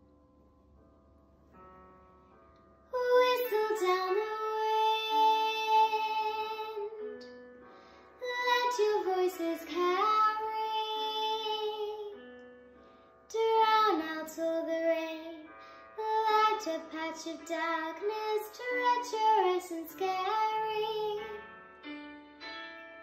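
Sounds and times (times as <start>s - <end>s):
girl singing a slow ballad: 2.9s - 12.4s, 13.3s - 21.6s.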